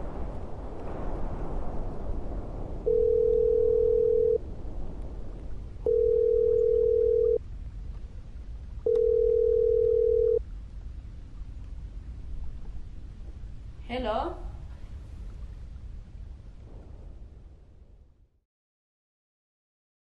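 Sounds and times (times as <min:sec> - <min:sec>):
phone ringing tone beeps: 0:02.9 - 0:04.4, 0:05.9 - 0:07.4, 0:08.9 - 0:10.4.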